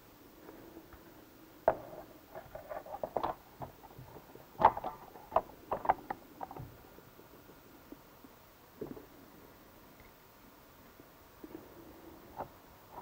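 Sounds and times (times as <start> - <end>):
plastic parts clicking and scraping: 1.7 - 6.8.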